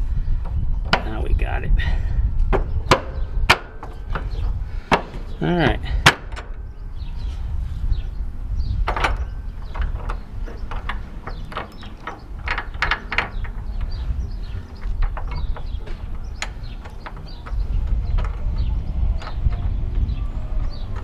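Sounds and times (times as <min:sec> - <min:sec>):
steady low rumble: 0:00.0 - 0:21.0
metal nuts clicking and clinking: 0:08.9 - 0:14.0.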